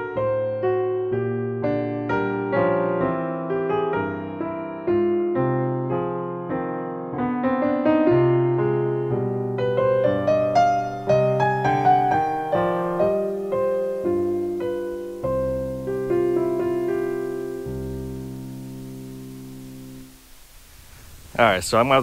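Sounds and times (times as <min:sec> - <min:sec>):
piano music: 0:00.0 - 0:20.5.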